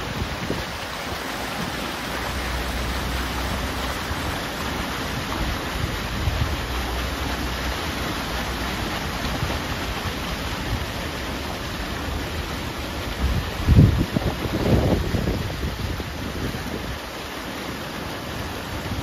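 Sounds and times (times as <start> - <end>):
wind blowing across microphone: 0.0 - 7.4, 13.1 - 17.2.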